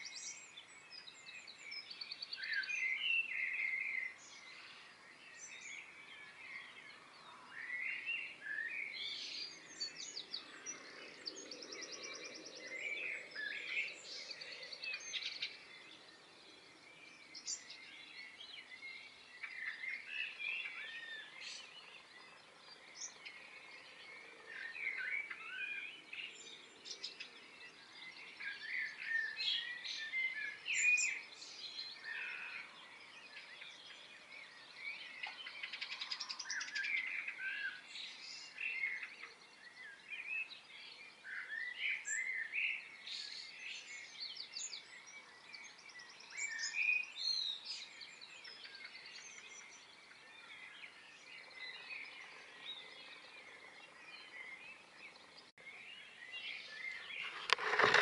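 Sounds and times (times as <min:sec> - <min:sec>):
birds singing and chirping: 0:00.0 - 0:58.0.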